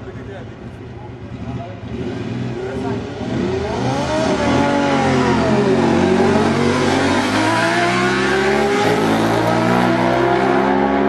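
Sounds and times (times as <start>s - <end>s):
motorcycles accelerating hard: 1.2s - 11.0s.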